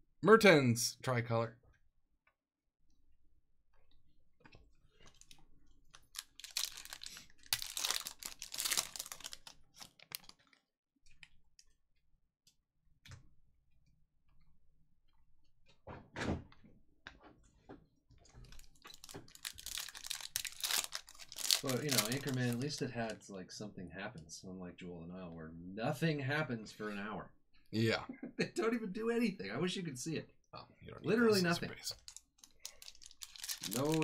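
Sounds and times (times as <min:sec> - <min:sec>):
foil pack crinkling: 0:05.0 - 0:10.6, 0:18.5 - 0:23.1, 0:32.0 - 0:34.0.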